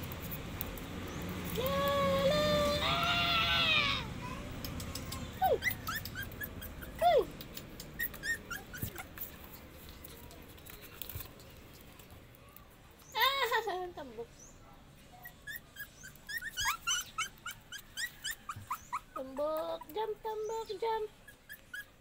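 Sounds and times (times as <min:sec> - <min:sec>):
light clicks: 0:04.6 - 0:06.2, 0:07.3 - 0:08.2
puppies whimpering: 0:05.0 - 0:09.6, 0:15.2 - 0:22.0
puppy yelps: 0:05.4 - 0:09.3, 0:15.2 - 0:19.9, 0:21.2 - 0:22.0
high squeaks: 0:15.2 - 0:19.2.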